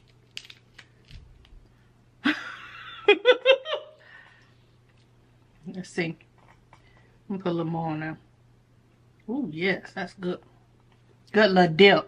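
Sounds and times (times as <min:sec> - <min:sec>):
person laughing: 0:02.2 - 0:04.0.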